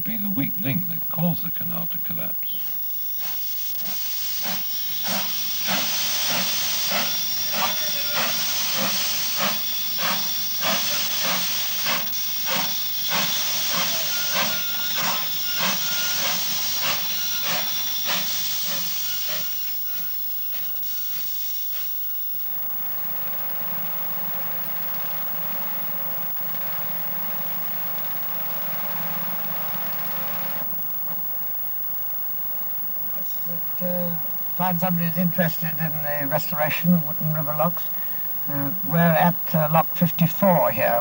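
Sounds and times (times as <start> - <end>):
steam hissing: 2.5 - 30.7
steam locomotive chuffing: 3.2 - 22.1, 22.8 - 30.7.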